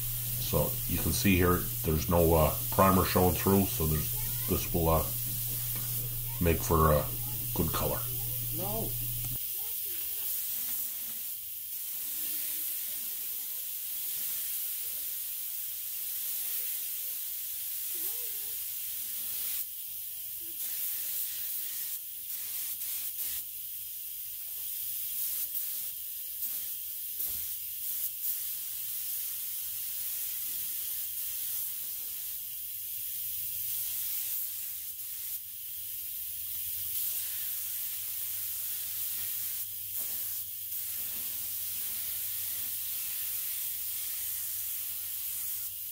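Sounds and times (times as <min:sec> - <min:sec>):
faint low hum: 0:00.0 - 0:09.4
spray gun hissing: 0:00.0 - 0:17.6, 0:20.6 - 0:25.4, 0:26.3 - 0:45.9.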